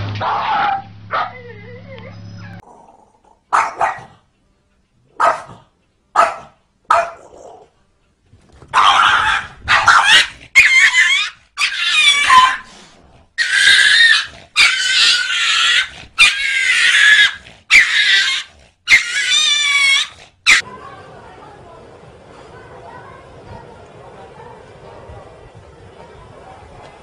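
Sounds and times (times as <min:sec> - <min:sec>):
dog barks: 0:00.2 - 0:01.4, 0:03.4 - 0:04.2, 0:05.1 - 0:07.7, 0:08.7 - 0:12.7, 0:13.4 - 0:20.6
small dog snarling and growling: 0:09.1 - 0:11.0, 0:11.8 - 0:20.6.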